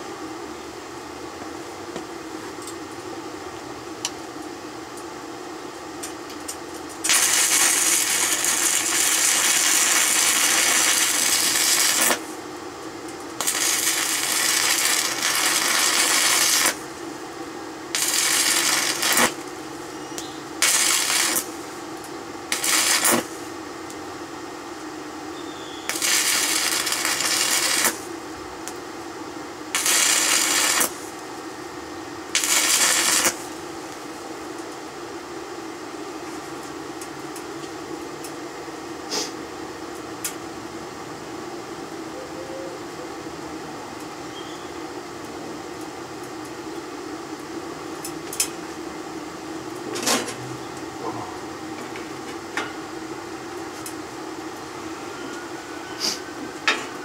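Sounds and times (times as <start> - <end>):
steady fan hum: 0.0 - 57.0
welding arc crackling and sizzling: 6.0 - 34.9, 43.8 - 55.0.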